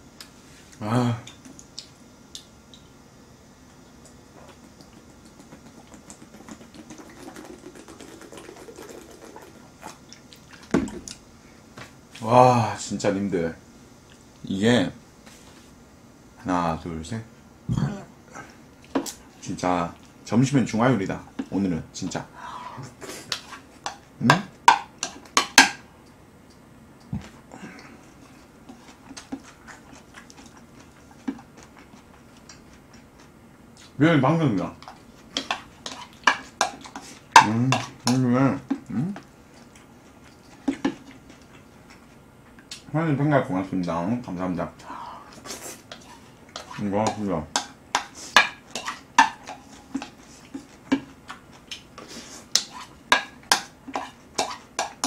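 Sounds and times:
mouth smacking: 4.0 - 10.5
chewing: 4.0 - 11.2, 27.8 - 34.0
person gulping drink: 4.4 - 11.0.

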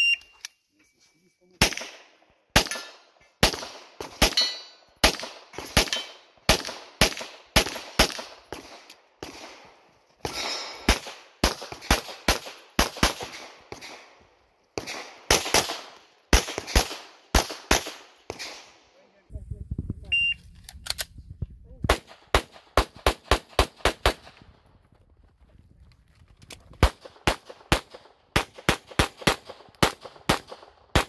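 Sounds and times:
pistol shots with echo: 1.6 - 18.9, 21.9 - 24.4, 26.8 - 31.0.

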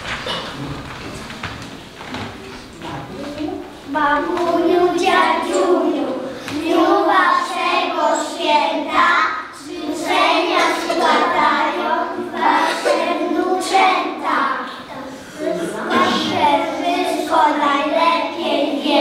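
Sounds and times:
children singing in unison: 3.9 - 19.0.

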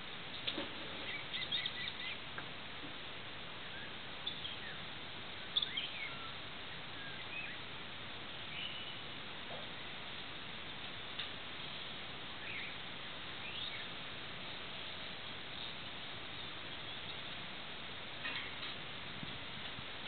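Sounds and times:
steady background hiss: 0.0 - 20.0
birds chirping and whistling: 0.9 - 2.2, 3.6 - 4.9, 5.5 - 7.6, 8.4 - 9.2, 11.7 - 12.8, 13.4 - 13.9.

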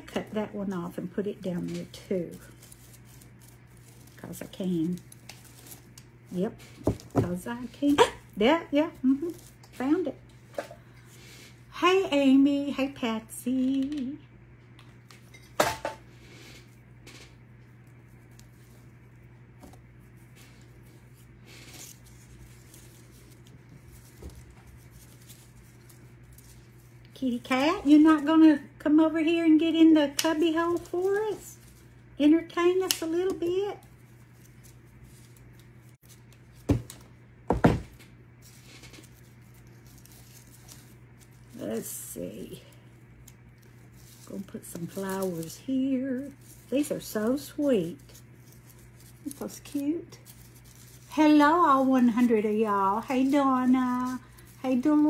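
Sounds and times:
paper rustling and scraping: 0.0 - 11.6, 16.1 - 28.3, 30.2 - 37.1, 38.4 - 55.0
dried stems crackling: 0.0 - 12.6, 16.1 - 37.2, 38.1 - 55.0
steady low hum: 0.0 - 55.0
craft tools knocking on worktable: 37.5 - 37.9.

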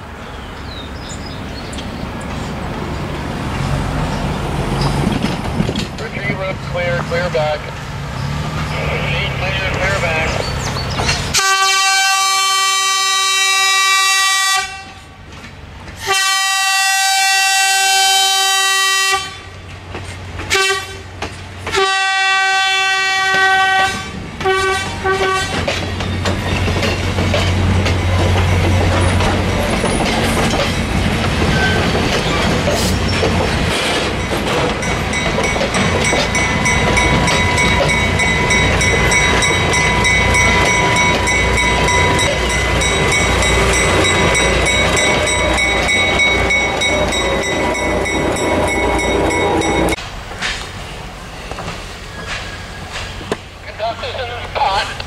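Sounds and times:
diesel locomotive running: 0.0 - 55.0
train wheels clattering on rails: 1.6 - 11.8, 15.2 - 16.2, 19.6 - 22.6, 23.2 - 55.0
train horn blasts: 11.3 - 15.1, 16.0 - 19.6, 20.5 - 21.1, 21.7 - 25.7.

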